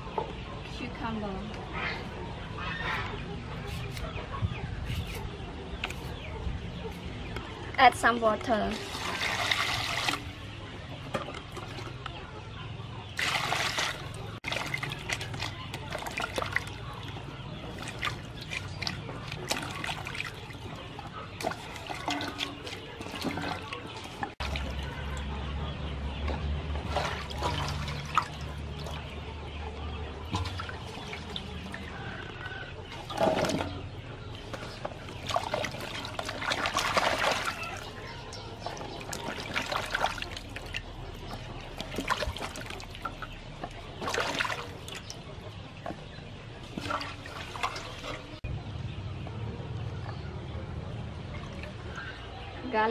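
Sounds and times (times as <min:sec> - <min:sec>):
hands splashing water in basin: 0:08.7 - 0:10.3, 0:13.2 - 0:25.2, 0:26.8 - 0:29.1, 0:30.3 - 0:31.9, 0:34.6 - 0:43.4, 0:44.0 - 0:45.1.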